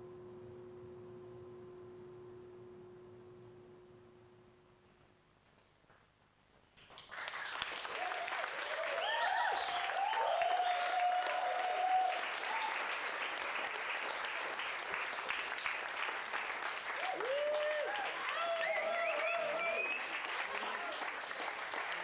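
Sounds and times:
audience applause: 6.8 - 22.0
people whooping and cheering: 7.4 - 13.4, 16.8 - 22.0.

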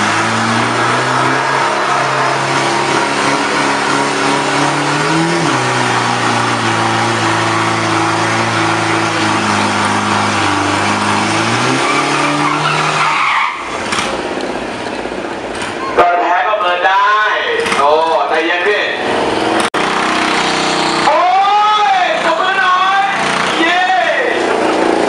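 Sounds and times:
tyres spinning with screech: 0.0 - 14.1
diesel engine revving high: 0.0 - 15.8, 18.9 - 25.0.

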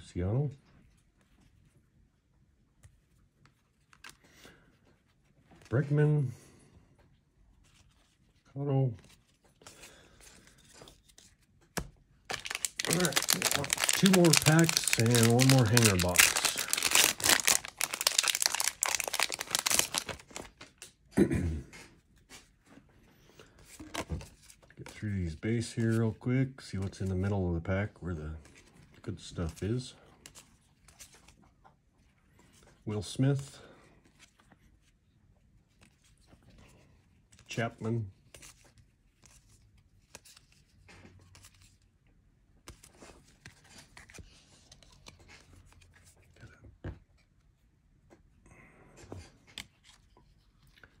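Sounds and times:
plastic wrapper crinkling: 12.3 - 20.9.

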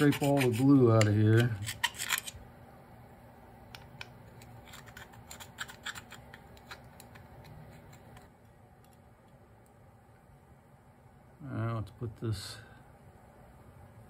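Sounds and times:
screwdriver scraping metal bowl: 0.0 - 2.4, 4.3 - 8.3
steady low hum: 0.0 - 14.0.

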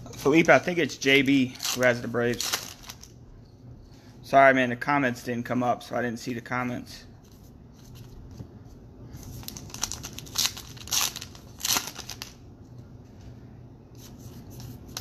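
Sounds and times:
wrapper being torn and crinkled: 1.6 - 3.1, 9.4 - 12.4.

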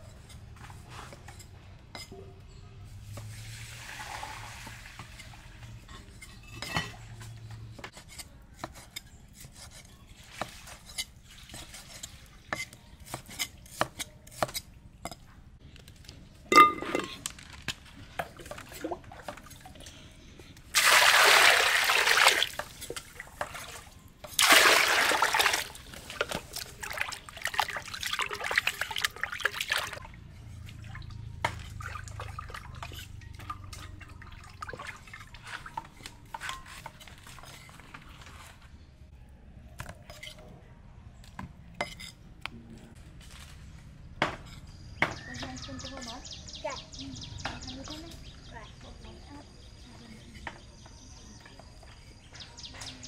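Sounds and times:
water splashing and sloshing: 3.0 - 7.8, 10.2 - 12.4, 16.5 - 38.7
water pouring into pot: 3.3 - 5.2, 20.7 - 30.0.

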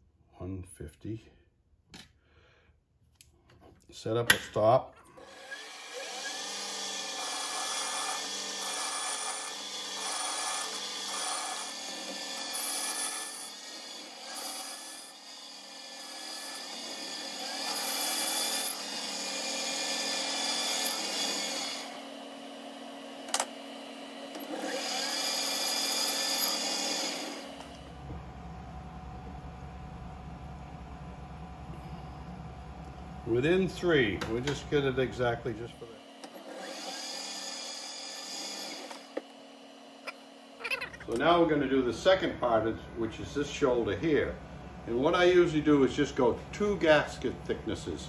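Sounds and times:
grating metal cutting noise: 5.2 - 27.9, 33.2 - 44.3
metal lathe whine: 5.2 - 47.9
low hum: 27.8 - 34.5.

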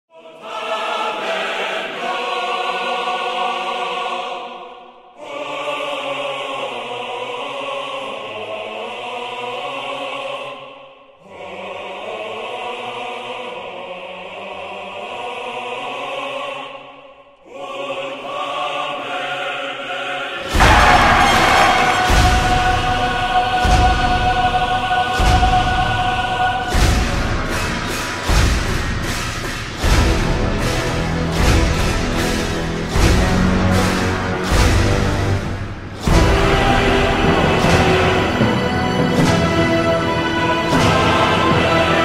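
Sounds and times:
choir singing held chords: 0.1 - 42.0.

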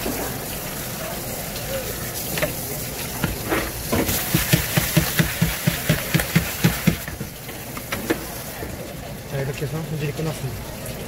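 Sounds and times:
knife chopping on cutting board: 4.1 - 7.1.

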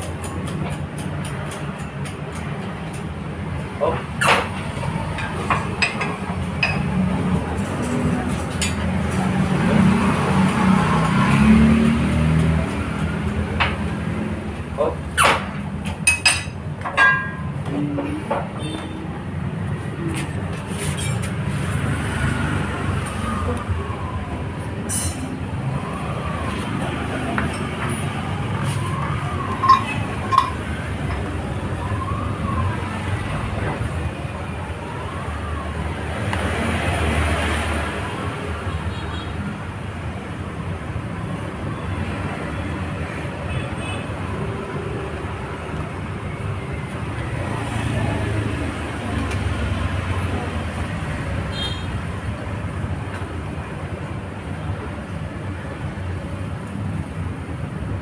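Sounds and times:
street traffic noise: 0.0 - 58.0
siren wailing: 22.4 - 37.4.

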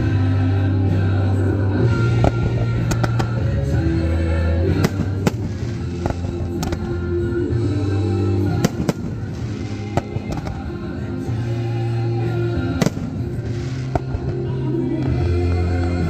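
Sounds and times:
firework shells bursting: 2.2 - 3.5, 4.7 - 7.4, 8.4 - 11.4, 12.8 - 15.2.

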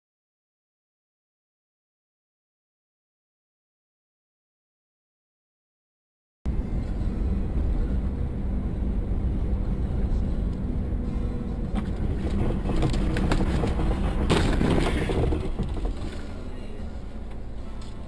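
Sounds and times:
car engine and tyres on snow: 6.5 - 18.0
knocks and thuds: 11.7 - 16.3.

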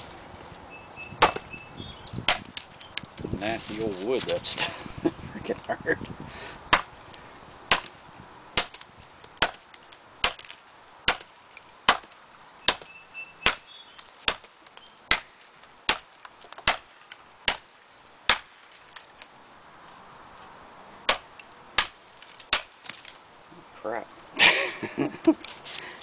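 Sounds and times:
hatchet chopping wood: 1.2 - 1.5, 2.3 - 2.7, 6.7 - 6.9, 7.7 - 8.0, 8.6 - 19.1, 21.1 - 23.1.

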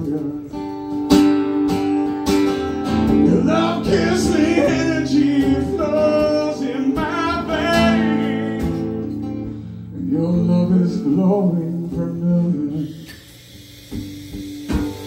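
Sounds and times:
man singing: 0.0 - 0.7, 3.1 - 9.2, 9.9 - 13.2
guitar strumming chords: 0.0 - 12.7.

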